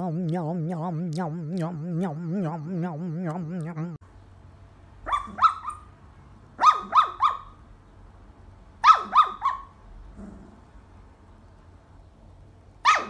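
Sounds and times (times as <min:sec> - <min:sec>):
sleeping puppy yipping: 0:05.1 - 0:05.9, 0:06.6 - 0:07.5, 0:08.8 - 0:09.7.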